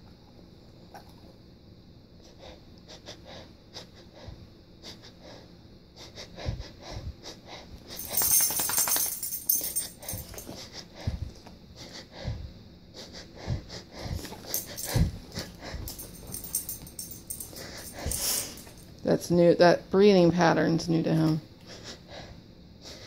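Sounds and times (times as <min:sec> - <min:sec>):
person breathing hard: 0:02.3 - 0:08.4, 0:09.2 - 0:18.8.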